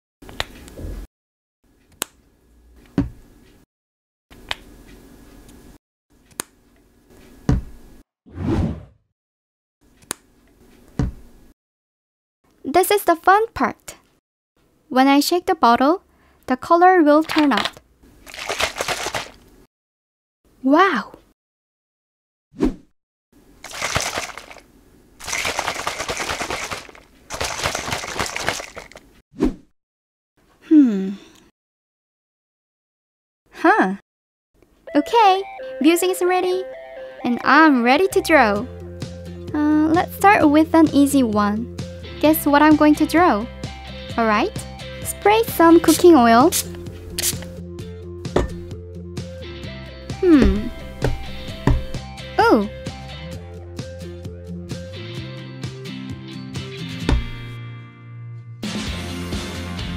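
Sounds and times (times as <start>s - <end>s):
squeeze bottles shaken rattling: 17.2s - 19.4s, 23.6s - 29.2s.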